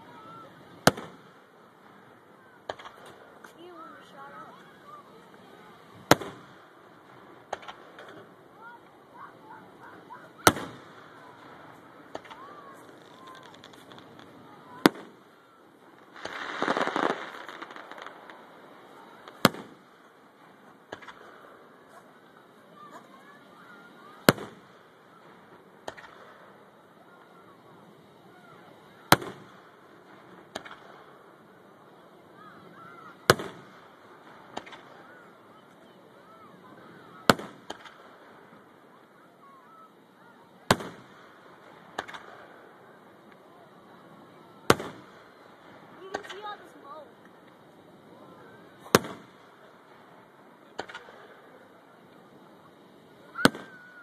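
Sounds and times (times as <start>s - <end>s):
firework crackling: 0.0s - 54.0s.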